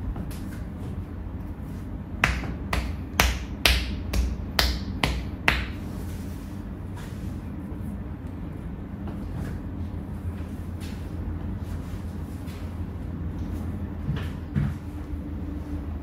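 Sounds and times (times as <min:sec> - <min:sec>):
low background hum: 0:00.0 - 0:16.0
sharp hand slaps: 0:02.2 - 0:05.8.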